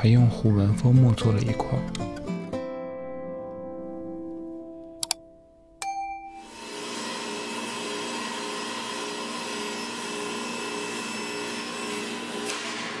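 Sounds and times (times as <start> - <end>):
table saw whirring: 6.4 - 13.0.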